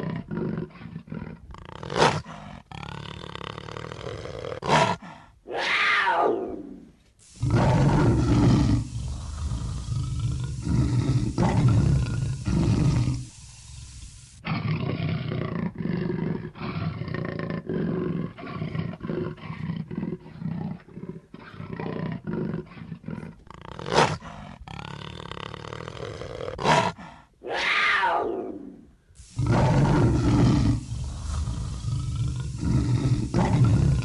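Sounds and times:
big cat calling: 27.4s - 34.0s.

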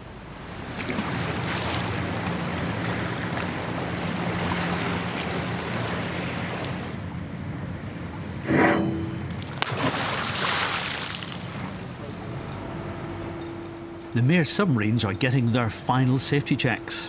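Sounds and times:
wind and sea rushing: 0.0s - 13.2s.

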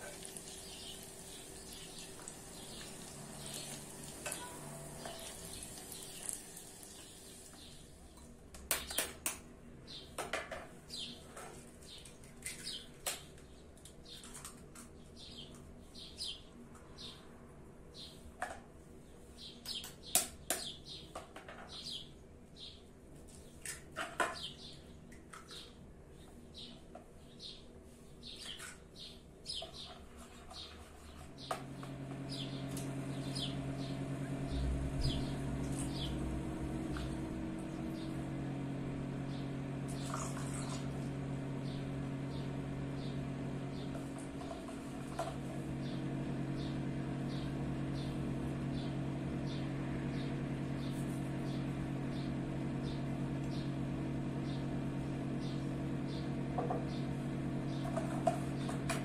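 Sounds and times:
small bird chirping: 0.2s - 7.9s, 32.3s - 38.3s
steady low hum: 31.4s - 59.0s.

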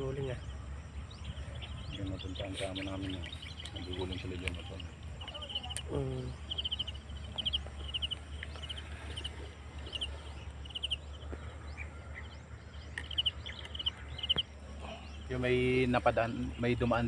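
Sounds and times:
small animal chirping: 1.6s - 11.2s, 12.9s - 14.6s.

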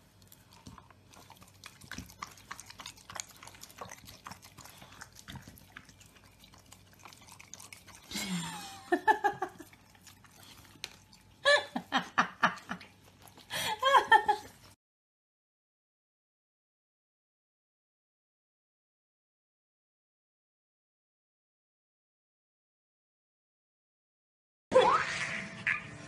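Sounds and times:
dog licking yogurt: 0.0s - 14.7s
dog vocalizing: 0.4s - 11.6s.

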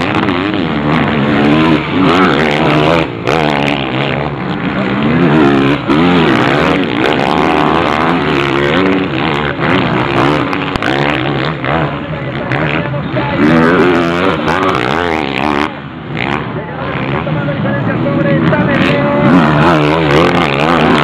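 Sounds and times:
motocross bikes revving: 0.0s - 21.0s.

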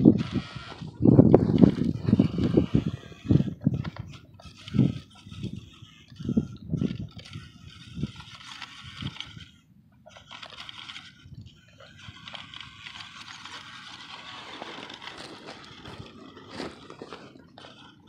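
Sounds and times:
stones crunching under tyres: 13.0s - 17.8s.

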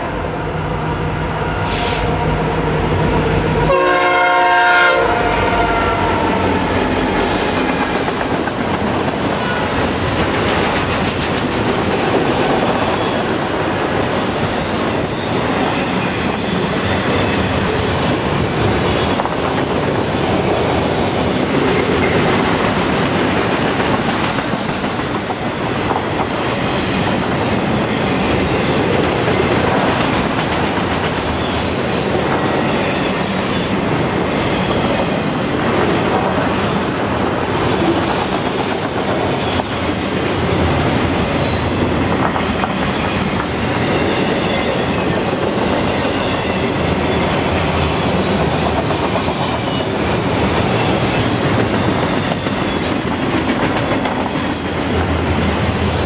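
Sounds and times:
train rumble: 0.8s - 56.0s
locomotive horn chord: 3.6s - 6.6s
wheels clattering on rails: 7.6s - 13.1s, 42.0s - 55.6s.

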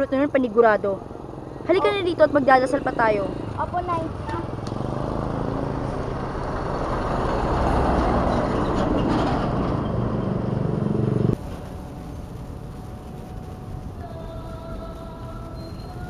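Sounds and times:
motorcycle passing: 0.0s - 11.4s
truck passing: 0.0s - 15.2s.

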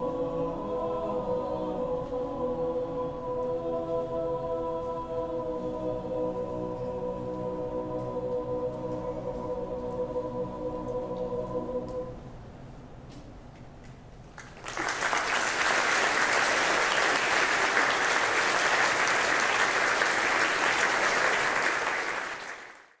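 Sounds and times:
choir holding a chord: 0.0s - 12.3s, 15.2s - 22.8s
audience applause: 14.4s - 23.0s.

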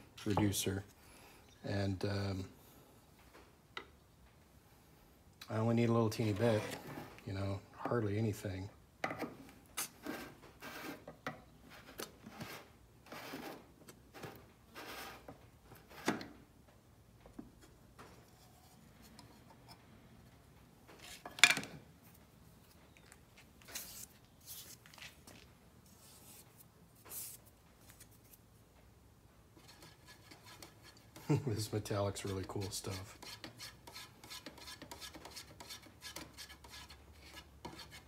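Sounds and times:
metal paint can lid scraping: 6.2s - 7.2s
metal scraping on workbench: 6.2s - 7.2s.

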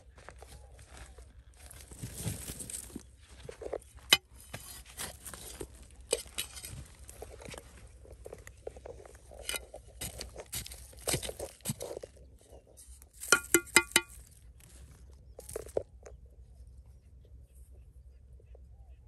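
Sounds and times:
small hard objects clinking: 12.8s - 14.4s.

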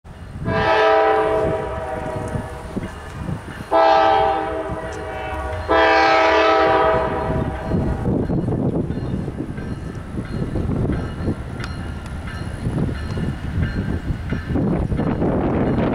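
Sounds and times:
low rumble of train: 0.1s - 15.9s
locomotive air horn blasts: 0.4s - 2.8s, 3.7s - 7.9s.

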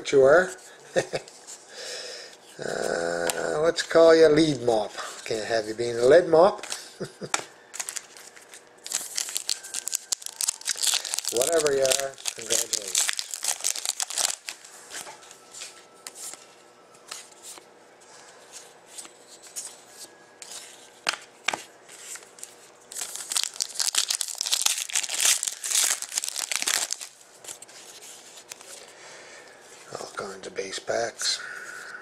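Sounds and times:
foil wrappers crinkling: 7.6s - 16.4s, 22.1s - 28.9s
foil pack tearing open: 7.8s - 14.6s, 22.9s - 27.2s.

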